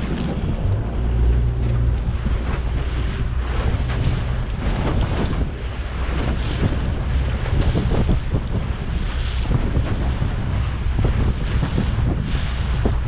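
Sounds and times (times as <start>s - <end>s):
boat motor running: 0.0s - 13.0s
water slapping boat hull: 0.0s - 13.0s
wind buffeting microphone: 0.0s - 13.0s.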